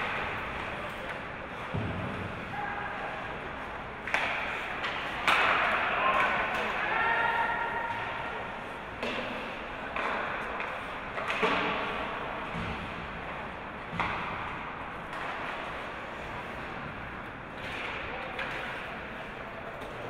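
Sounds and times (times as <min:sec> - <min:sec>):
stick and puck knocking boards: 0:09.0 - 0:15.9.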